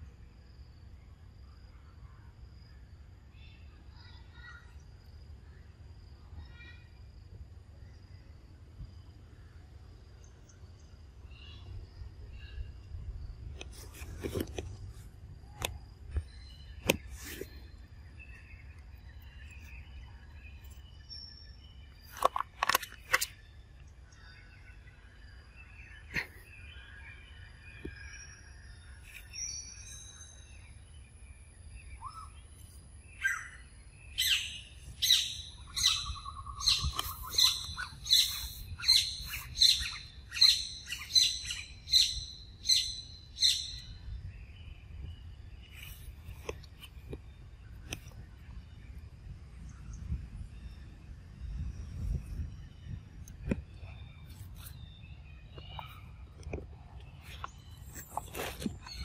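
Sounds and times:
bird chirps: 15.6 - 49.0, 49.6 - 59.0.

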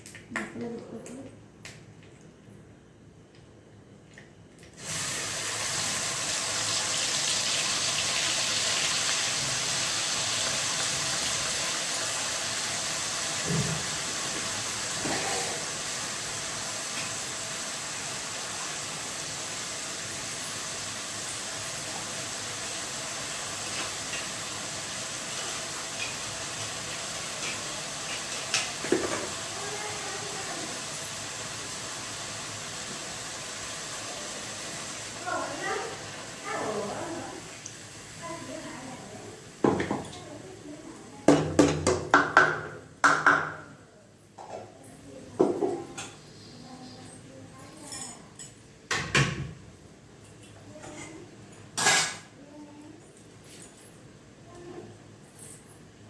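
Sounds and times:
paste sizzling in hot oil: 4.8 - 40.7
utensil knocking against pan: 41.3 - 43.7.

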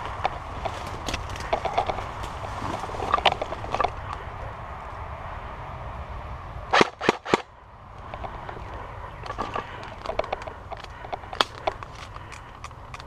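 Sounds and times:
airsoft gun shots: 6.7 - 7.5.

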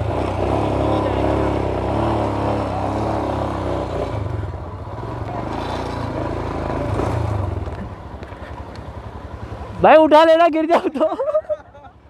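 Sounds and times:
motorcycle engine idling: 4.2 - 12.0.

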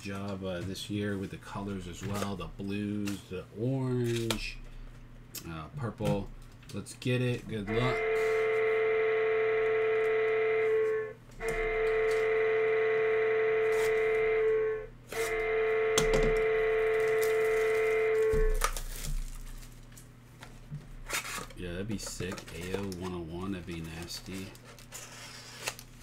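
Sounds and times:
long held musical tones: 7.6 - 18.6.

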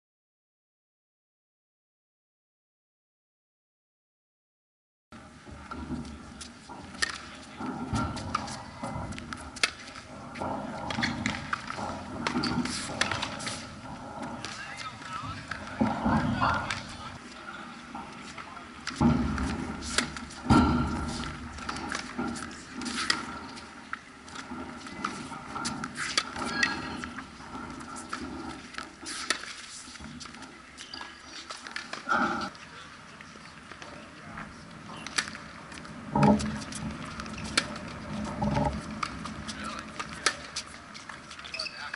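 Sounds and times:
footsteps on hard court: 5.2 - 32.5
tennis ball bouncing: 5.7 - 17.1
tennis racket striking ball: 10.8 - 17.1.

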